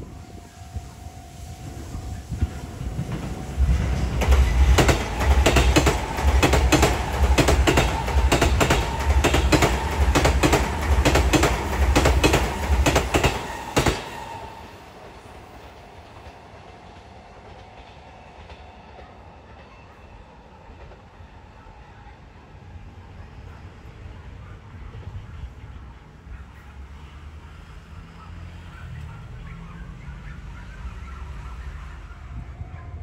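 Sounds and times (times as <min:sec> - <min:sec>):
electric train passing: 0:00.0 - 0:33.0
train wheels clacking: 0:02.3 - 0:20.2.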